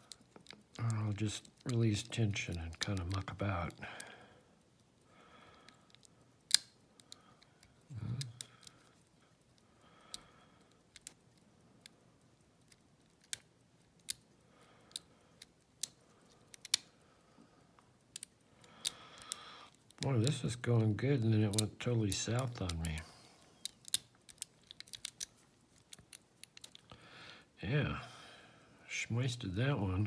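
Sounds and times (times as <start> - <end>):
lock pick metal clicks: 5.6 - 12.0, 12.6 - 17.0, 18.0 - 26.9.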